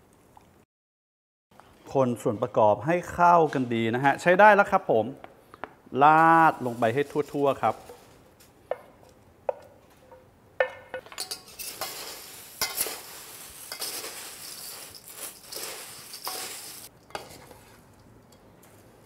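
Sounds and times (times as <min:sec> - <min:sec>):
flakes rustling and crunching: 0:06.1 - 0:08.3, 0:11.2 - 0:17.9
utensils scraping against bowl: 0:11.2 - 0:18.0.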